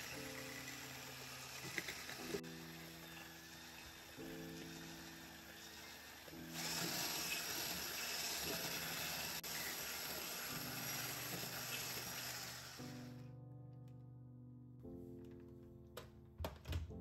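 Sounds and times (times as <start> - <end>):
electric hand mixer whisking: 0.0 - 13.2.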